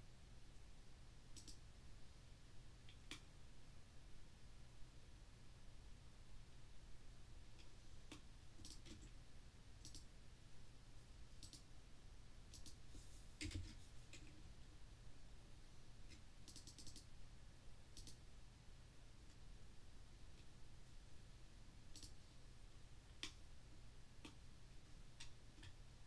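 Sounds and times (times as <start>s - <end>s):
faint low hum: 0.0s - 26.0s
computer mouse clicks: 1.4s - 1.6s, 2.9s - 3.3s, 7.6s - 9.2s, 9.8s - 10.1s, 11.4s - 11.7s, 12.5s - 12.8s, 16.1s - 17.1s, 18.0s - 18.2s, 21.9s - 22.2s, 23.1s - 23.4s.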